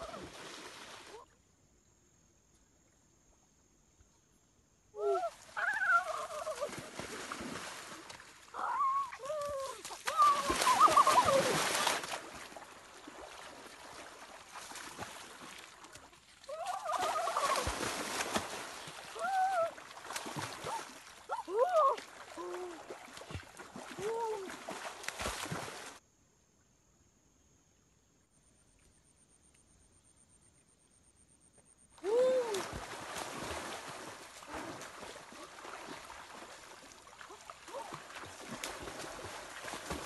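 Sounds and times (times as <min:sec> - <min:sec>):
splashing in a river: 0:00.0 - 0:01.5, 0:05.0 - 0:26.0, 0:31.9 - 0:40.0
boys whooping and calling out: 0:08.5 - 0:11.6, 0:16.5 - 0:17.7, 0:19.2 - 0:19.8, 0:20.7 - 0:22.8, 0:24.0 - 0:24.6, 0:32.0 - 0:32.7.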